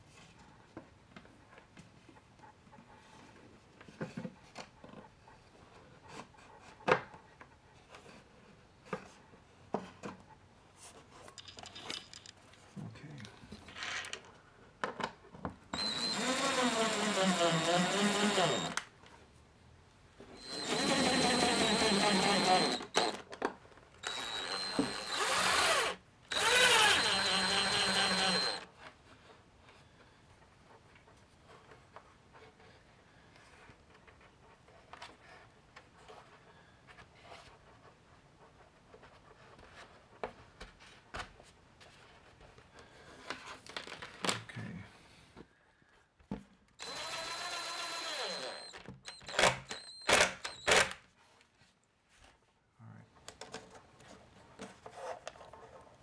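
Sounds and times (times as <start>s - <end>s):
electric screwdriver whining: 15.8s - 18.9s, 20.4s - 23.3s, 24.0s - 28.7s, 46.8s - 51.0s.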